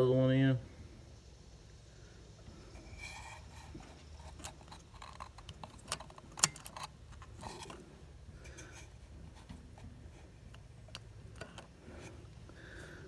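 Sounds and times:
small metallic clicks and taps: 4.3 - 7.8, 10.5 - 11.8.

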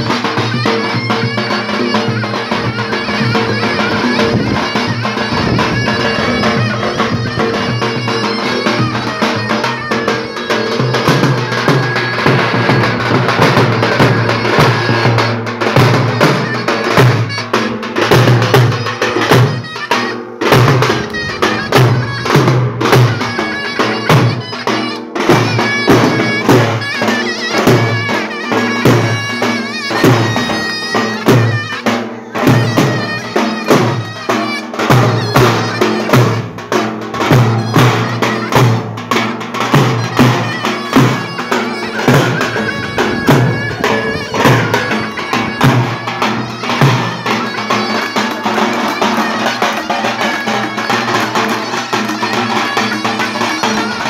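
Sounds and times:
shrill reed melody: 0.0 - 54.0
heavy big drum strokes: 34.7 - 47.8.

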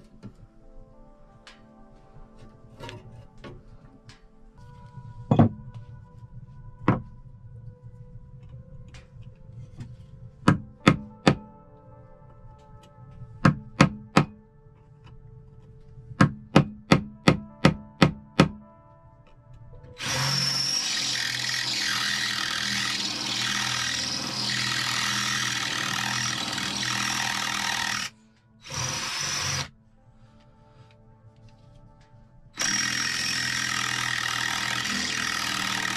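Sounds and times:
cordless drill boring into metal: 20.0 - 29.7, 32.6 - 35.9.

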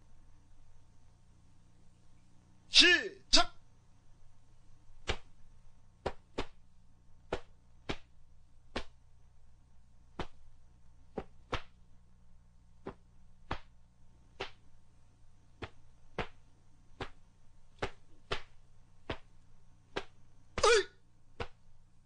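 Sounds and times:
faint steady hum: 0.0 - 22.0
uniform cloth snapping: 5.0 - 5.3, 6.0 - 6.6, 7.3 - 8.1, 8.7 - 9.0, 10.2 - 10.4, 11.2 - 11.8, 12.8 - 13.8, 14.4 - 14.7, 15.6 - 16.4, 17.8 - 19.3, 21.4 - 21.6.

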